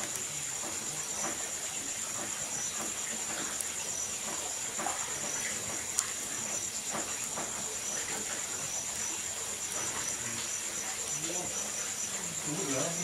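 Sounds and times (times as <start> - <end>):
crickets trilling: 0.0 - 13.0
wood fire hissing and popping: 0.0 - 13.0.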